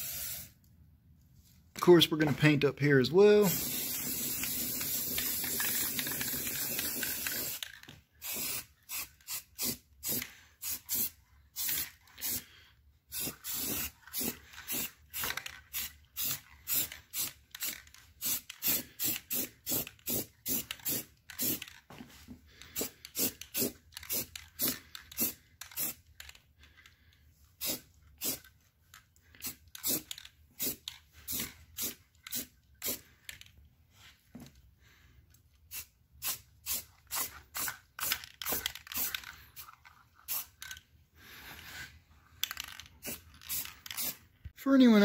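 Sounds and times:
spray paint can hissing: 0:00.0 - 0:00.6, 0:03.4 - 0:12.4, 0:13.1 - 0:21.7, 0:22.8 - 0:26.0, 0:27.6 - 0:28.4, 0:29.4 - 0:33.0, 0:35.7 - 0:39.4, 0:40.2 - 0:40.6, 0:43.0 - 0:44.2.

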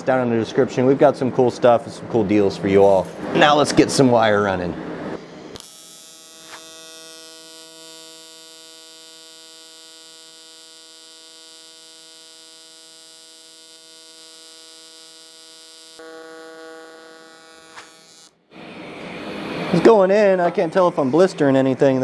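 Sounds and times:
welding arc buzzing: 0:05.2 - 0:21.6.

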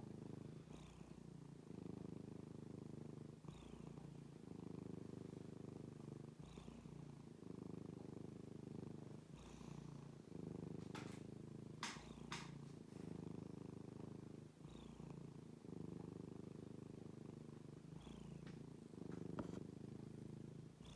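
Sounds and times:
cat purring: 0:00.0 - 0:20.9.

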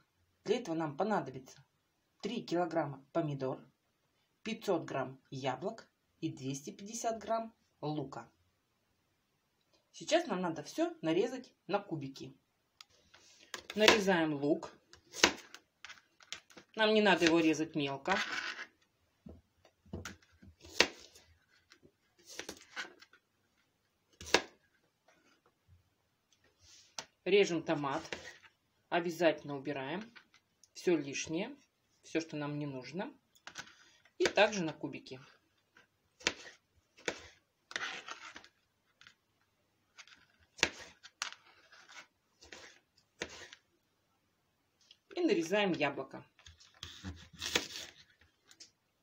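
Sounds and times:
knife cutting on plastic board: 0:14.9 - 0:16.4, 0:20.0 - 0:21.2, 0:22.2 - 0:23.1, 0:24.1 - 0:24.6, 0:36.1 - 0:38.5, 0:40.0 - 0:43.6, 0:46.8 - 0:48.2
knife cutting onion on board: 0:36.2 - 0:38.3, 0:40.6 - 0:41.0, 0:42.4 - 0:43.6.

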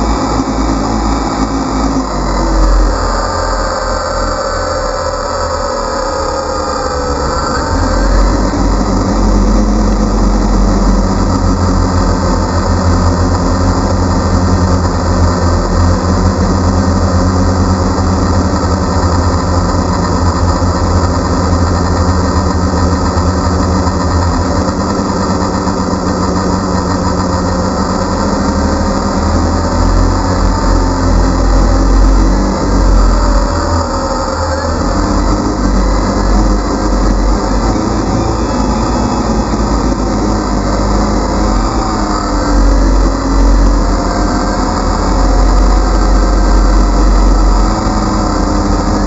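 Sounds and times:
drone motors whining: 0:00.0 - 0:49.0.

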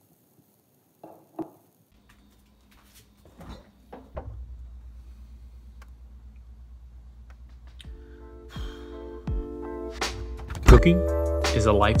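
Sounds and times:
refrigerator hum: 0:02.0 - 0:10.6.

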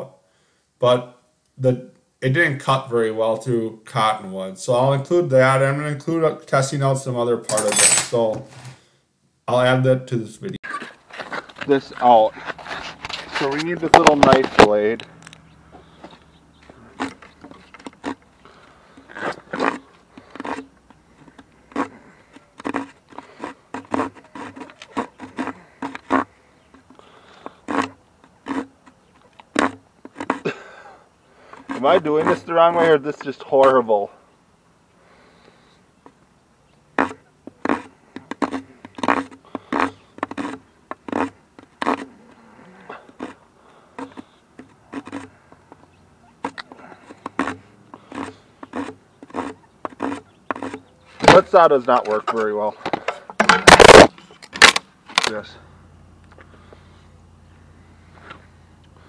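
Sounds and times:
blade sawing wooden stick: 0:21.7 - 0:26.3, 0:27.4 - 0:30.4, 0:31.4 - 0:33.0, 0:37.0 - 0:42.1, 0:44.0 - 0:45.8, 0:46.4 - 0:52.2.

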